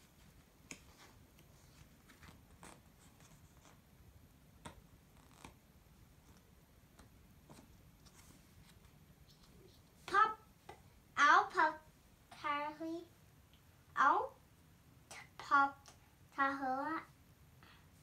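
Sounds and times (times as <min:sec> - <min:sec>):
book pages rustling: 0:00.0 - 0:03.8, 0:04.6 - 0:10.0.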